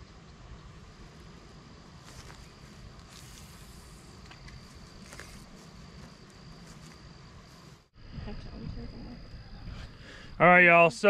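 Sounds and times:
low rumbling haze: 0:00.0 - 0:11.0
high-pitched insect drone: 0:01.0 - 0:11.0
brief hiss: 0:02.1 - 0:04.3.

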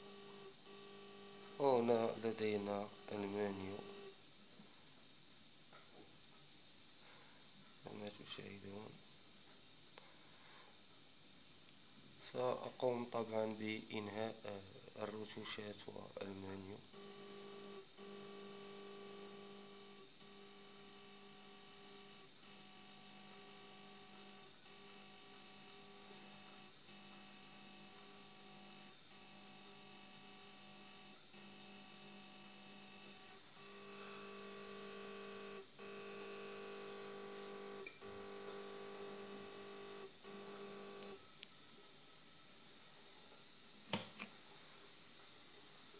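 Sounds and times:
stepper motor humming: 0:00.0 - 0:04.1, 0:24.0 - 0:41.2.

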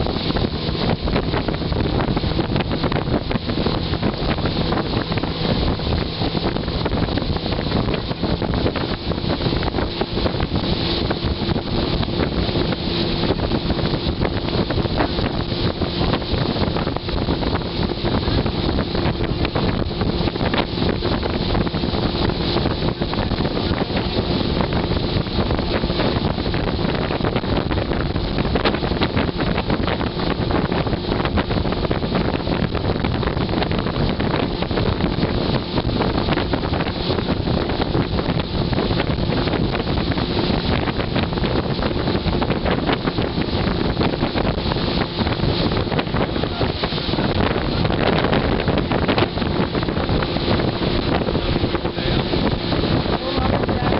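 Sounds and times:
boat engine hum: 0:00.0 - 0:53.9
wind buffeting microphone: 0:00.0 - 0:53.9.

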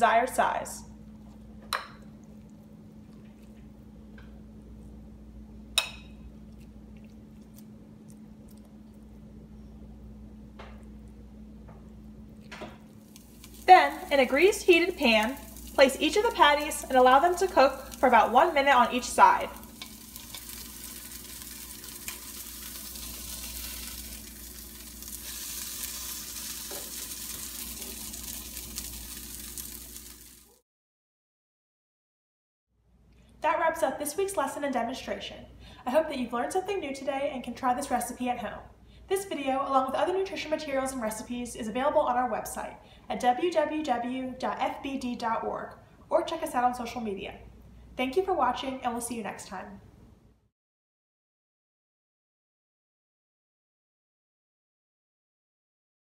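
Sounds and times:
steady low hum: 0:00.0 - 0:29.7
fritters sizzling in a pan: 0:13.0 - 0:30.6.

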